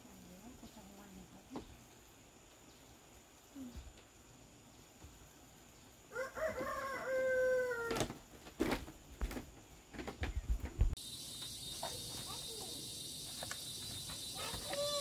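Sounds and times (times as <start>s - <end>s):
rooster crowing: 6.1s - 8.1s.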